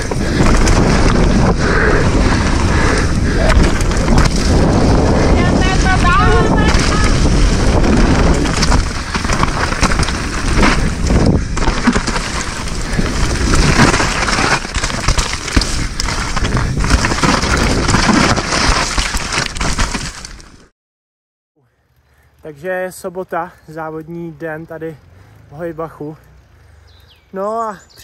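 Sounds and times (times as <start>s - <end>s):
bike knocks and rattles: 0.0s - 1.6s, 3.4s - 5.1s, 6.0s - 20.5s
wind rush on microphone: 0.0s - 19.8s
bike tyre noise: 0.0s - 20.7s.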